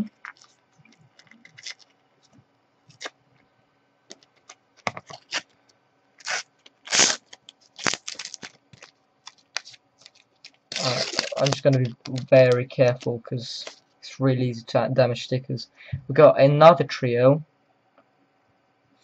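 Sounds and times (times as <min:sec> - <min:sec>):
sticker packet crinkling: 0:00.2 - 0:02.0, 0:02.9 - 0:03.2, 0:04.1 - 0:05.5, 0:06.2 - 0:13.8
packet tearing open: 0:01.2 - 0:01.9, 0:02.9 - 0:03.2, 0:04.4 - 0:05.5, 0:06.2 - 0:13.8.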